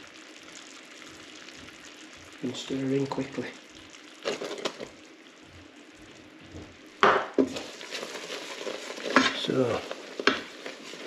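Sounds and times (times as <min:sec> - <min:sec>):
spatula scraping and knocking pot: 0:07.0 - 0:11.0.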